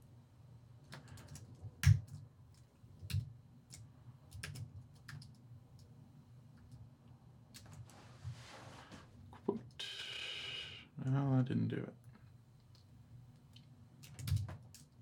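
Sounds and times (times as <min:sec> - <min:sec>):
computer keyboard keystrokes: 0:00.9 - 0:05.9, 0:13.5 - 0:15.0.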